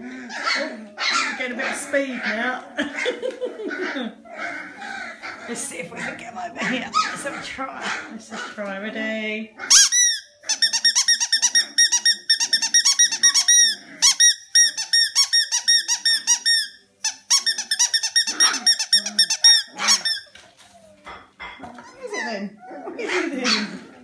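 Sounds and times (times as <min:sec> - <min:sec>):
squeaky dog toy squeaking: 0:09.7 - 0:20.4.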